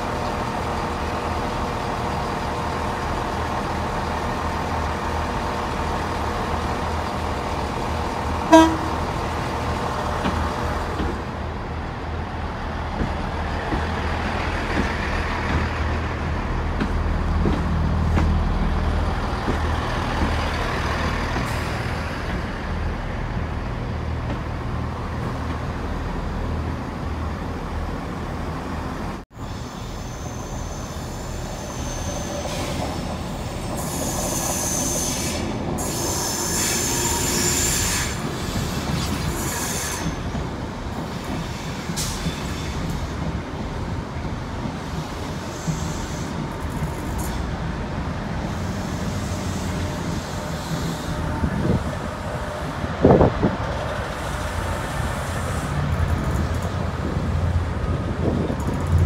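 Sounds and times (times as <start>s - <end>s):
train wheels rumbling on rail: 0.0s - 59.0s
high-pitched wheel squeal: 29.6s - 40.2s.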